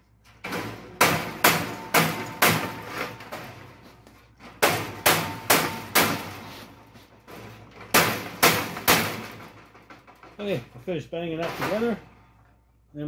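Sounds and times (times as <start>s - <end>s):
hammer blows on steel frame: 4.6s - 6.6s.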